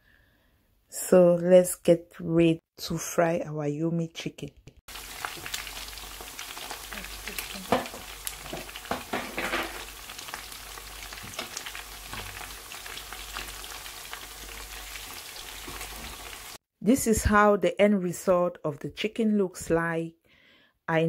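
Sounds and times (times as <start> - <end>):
chicken sizzling in hot oil: 4.9 - 16.6
oil crackling and popping: 4.9 - 16.6.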